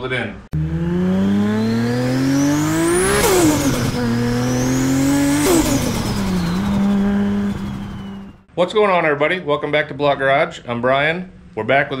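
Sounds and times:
car engine accelerating hard: 0.6 - 8.5.

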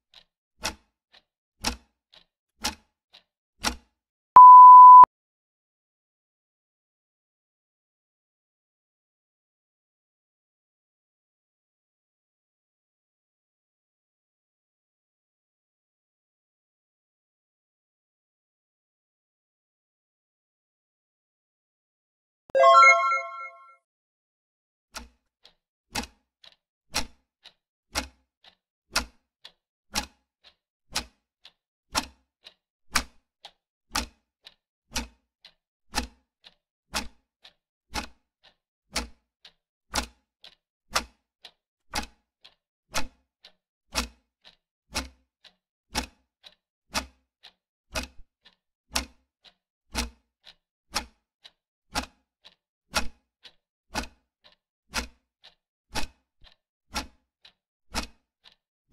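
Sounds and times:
clock ticking: 0.6 - 2.8, 22.6 - 23.6, 46.0 - 46.6, 54.0 - 55.6.

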